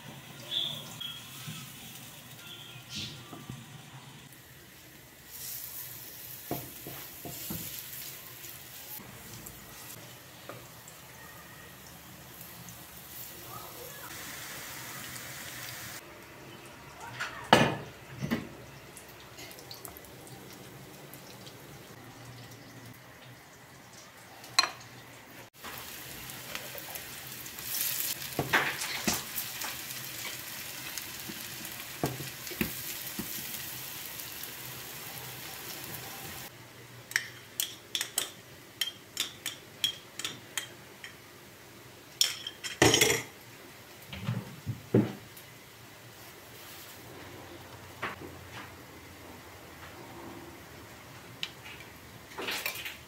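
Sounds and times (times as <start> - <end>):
fritters sizzling in oil: 0.0 - 16.0, 16.6 - 36.5.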